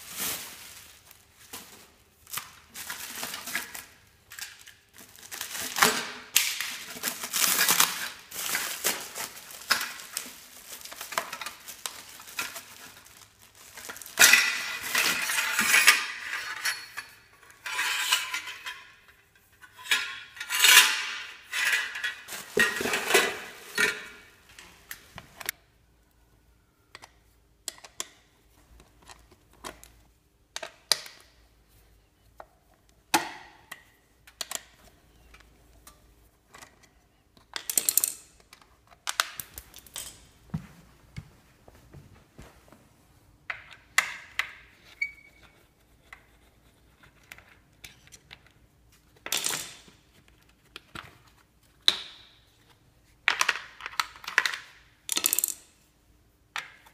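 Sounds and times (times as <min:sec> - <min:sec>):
bubble wrap rustling and crinkling: 0:00.0 - 0:15.5, 0:22.2 - 0:24.4.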